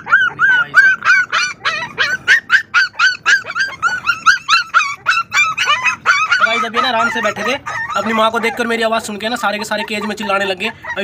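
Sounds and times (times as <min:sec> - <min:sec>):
puppies yelping: 0:00.0 - 0:11.0.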